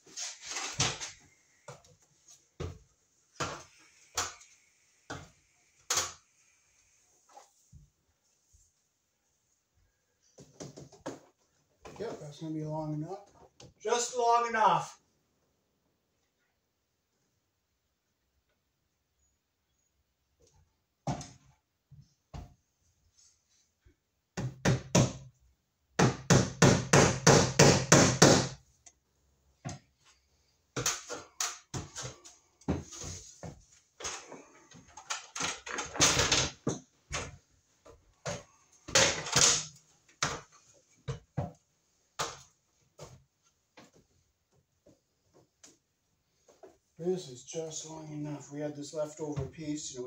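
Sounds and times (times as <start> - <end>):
hammer striking wood: 26.0 - 28.6.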